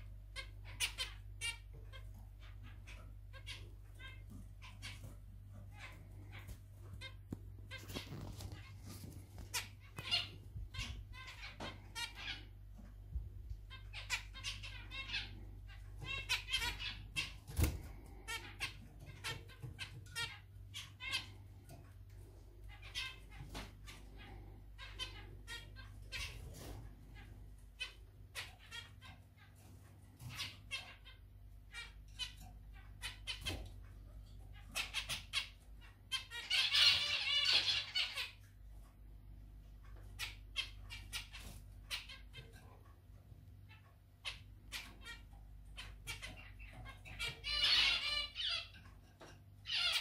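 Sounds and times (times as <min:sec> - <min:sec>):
finches calling: 0:00.2 - 0:12.9, 0:43.6 - 0:48.9.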